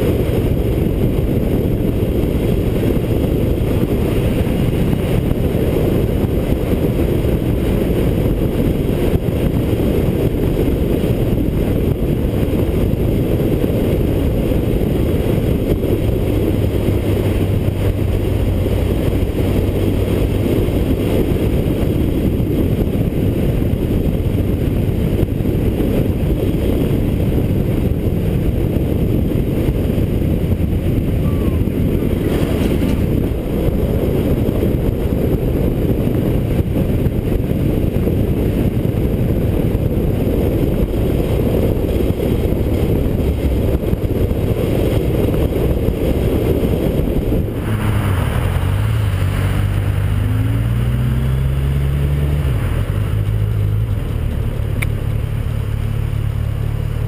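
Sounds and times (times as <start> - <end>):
motorcycle engine running: 0.0 - 57.0
wind noise on microphone: 0.0 - 57.0.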